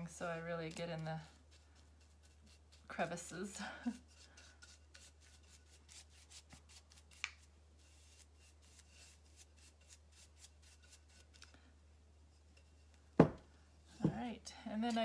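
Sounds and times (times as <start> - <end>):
paintbrush dabbing on pot: 0.0 - 11.5.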